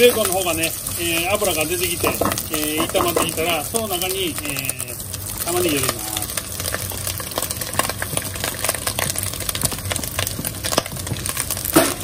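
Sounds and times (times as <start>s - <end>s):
bacon frying and crackling: 0.0s - 12.0s
onions landing in a pot: 2.0s - 3.5s, 10.4s - 12.0s.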